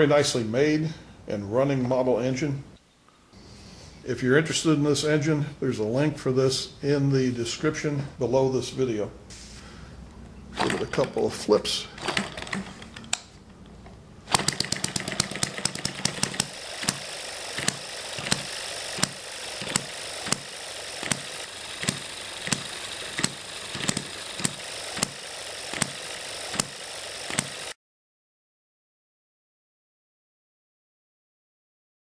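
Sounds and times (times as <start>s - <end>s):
mechanical clatter: 10.6s - 13.3s, 14.3s - 27.8s.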